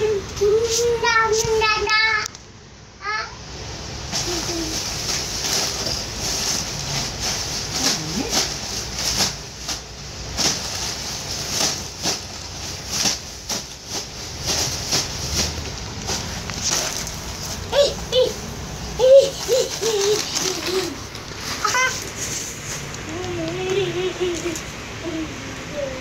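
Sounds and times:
plastic bag crinkling: 0:04.1 - 0:24.7.

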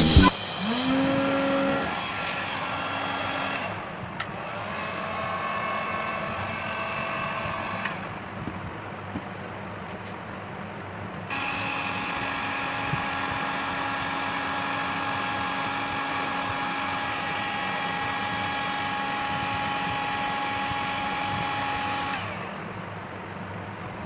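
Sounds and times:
rush of air: 0:00.0 - 0:02.1
hot air gun fan whining: 0:00.0 - 0:09.1, 0:11.3 - 0:24.0.

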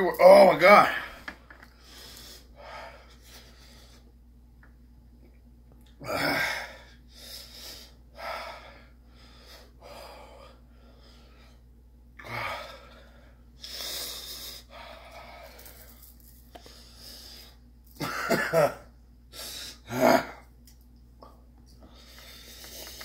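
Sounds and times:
man groaning: 0:06.0 - 0:06.8, 0:19.9 - 0:20.4
man gasping and breathing hard: 0:06.0 - 0:11.2.

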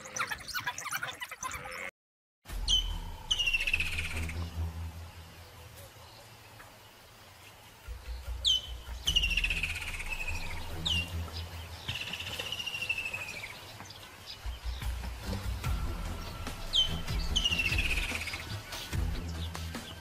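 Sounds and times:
birds whistling and chirping: 0:02.5 - 0:04.5, 0:07.8 - 0:20.0.

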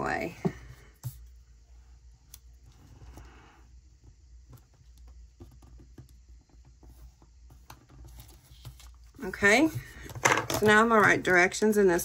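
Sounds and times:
paper rustle: 0:07.8 - 0:10.8.

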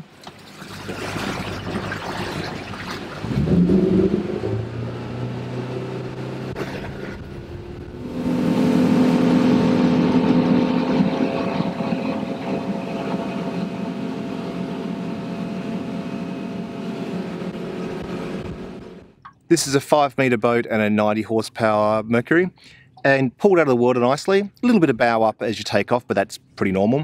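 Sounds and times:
wind and water rushing past hull: 0:00.0 - 0:19.2
outboard motor accelerating: 0:00.2 - 0:19.3.

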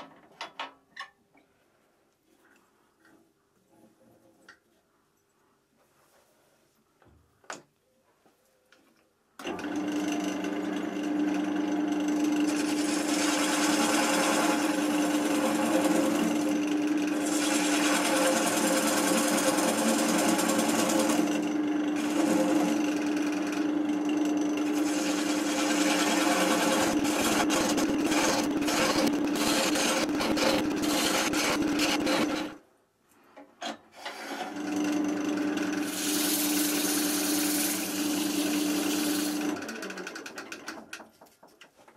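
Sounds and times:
wood lathe motor hum: 0:09.4 - 0:32.6, 0:34.3 - 0:40.4
turning tool scraping wood: 0:12.5 - 0:21.4, 0:22.0 - 0:32.6, 0:35.8 - 0:39.6.

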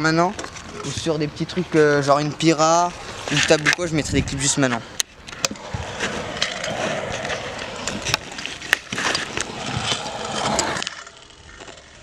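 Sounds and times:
scooter wheels rolling on concrete: 0:00.0 - 0:12.0.

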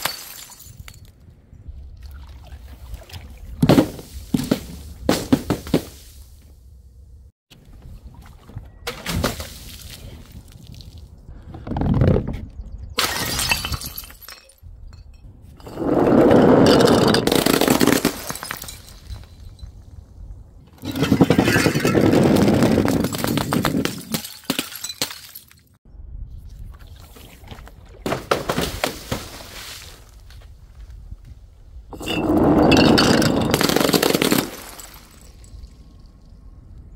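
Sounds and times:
glass bottles smashing: 0:00.0 - 0:01.0, 0:13.0 - 0:15.1, 0:16.6 - 0:19.7, 0:22.8 - 0:25.7, 0:31.9 - 0:35.8
glass shards clattering: 0:13.0 - 0:15.1.

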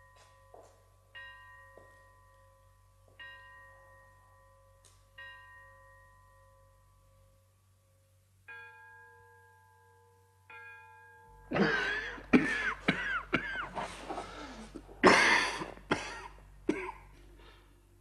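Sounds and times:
man coughing violently: 0:11.5 - 0:13.9, 0:14.8 - 0:17.1.

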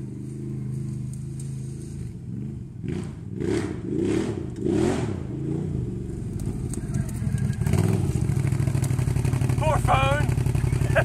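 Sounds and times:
atv engine revving: 0:00.0 - 0:11.0.

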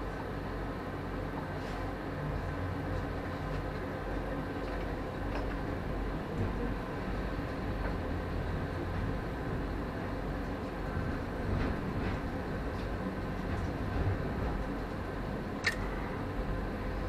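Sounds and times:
tram running rumble: 0:00.0 - 0:17.0
faint short clicks: 0:15.6 - 0:15.9.

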